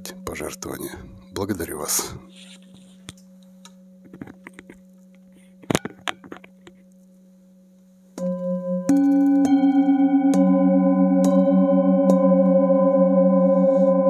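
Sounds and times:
singing bowl ringing: 8.2 - 14.0.

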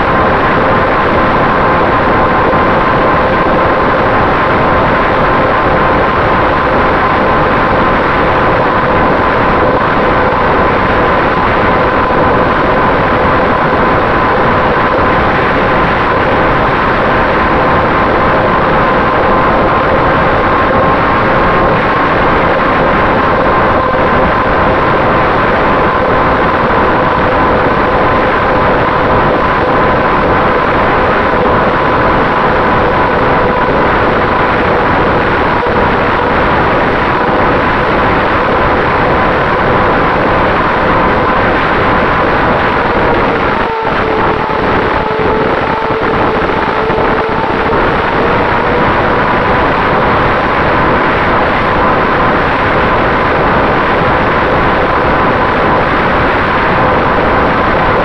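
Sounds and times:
wind rush: 0.0 - 58.0
electric motor whine: 41.1 - 50.9.

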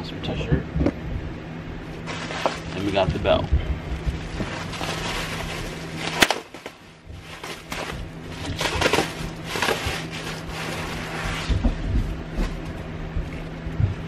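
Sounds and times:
packaging rustling: 2.0 - 12.6
sharp crack: 6.0 - 6.8.

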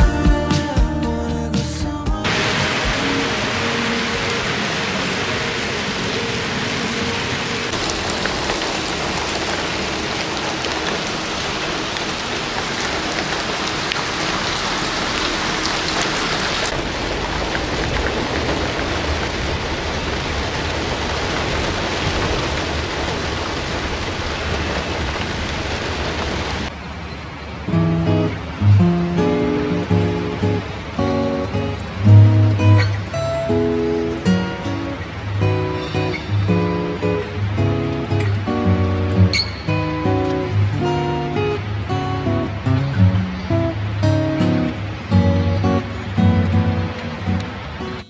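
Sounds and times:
heavy rain on wet street: 2.2 - 48.0
rain spattering on car windshield: 2.3 - 26.8.

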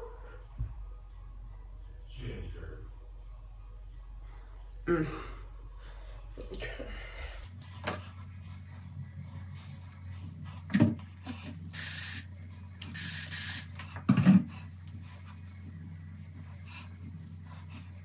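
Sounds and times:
spray bottle hissing: 11.7 - 13.8.

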